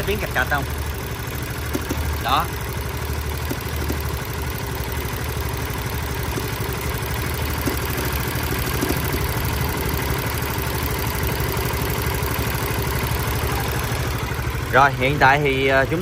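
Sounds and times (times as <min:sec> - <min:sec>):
motorcycle engine idling: 0:00.0 - 0:16.0
faint engine clack: 0:01.6 - 0:02.4.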